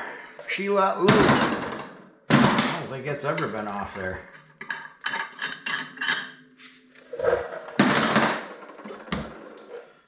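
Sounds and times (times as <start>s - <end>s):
metal clanks and scrapes: 3.4s - 6.4s.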